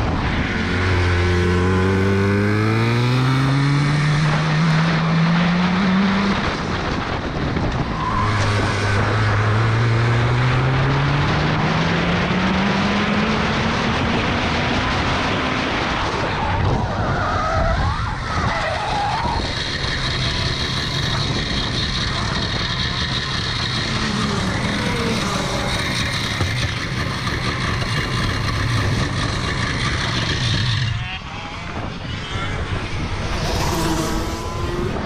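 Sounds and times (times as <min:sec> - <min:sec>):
kart engine at high revs: 0:00.0 - 0:16.7, 0:19.1 - 0:31.3, 0:31.9 - 0:35.0
tyres squealing and skidding: 0:07.8 - 0:09.0, 0:16.2 - 0:35.0.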